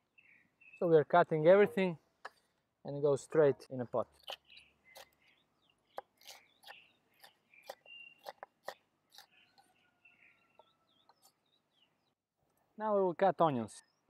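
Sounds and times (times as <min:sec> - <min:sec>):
birds chirping: 0:00.0 - 0:02.5, 0:03.3 - 0:12.7.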